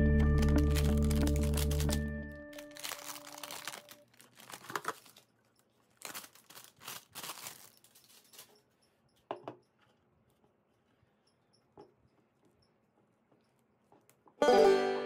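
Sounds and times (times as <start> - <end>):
plastic wrap crinkling: 0.1 - 8.6.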